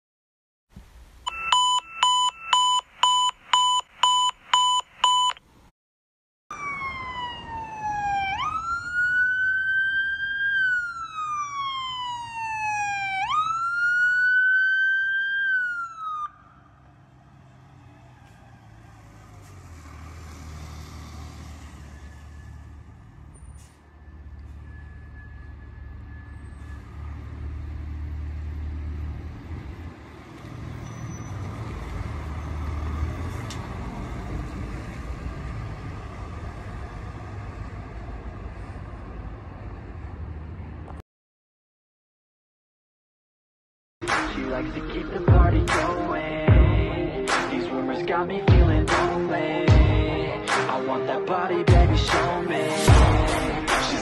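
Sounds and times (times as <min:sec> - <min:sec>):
short electronic beeps: 0:01.3 - 0:05.4
fire engine siren wailing: 0:06.5 - 0:37.6
truck engine and tyres rumbling: 0:06.5 - 0:41.0, 0:44.0 - 0:54.0.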